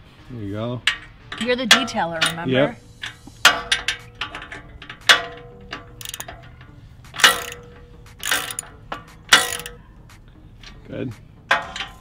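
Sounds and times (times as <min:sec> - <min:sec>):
metal tools clanking: 0:00.8 - 0:09.9, 0:11.5 - 0:12.0
ratchet wrench clicking: 0:00.9 - 0:09.8.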